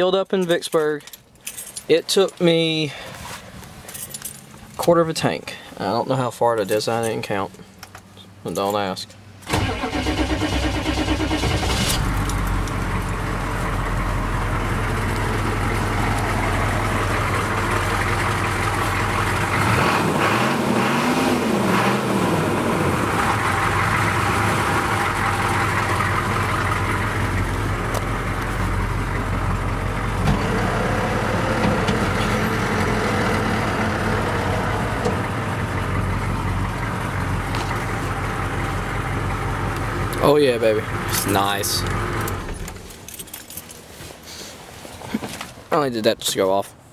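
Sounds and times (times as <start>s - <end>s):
diesel engine starting and idling: 9.4s - 43.6s
engine revving: 9.5s - 28.2s, 29.6s - 36.4s.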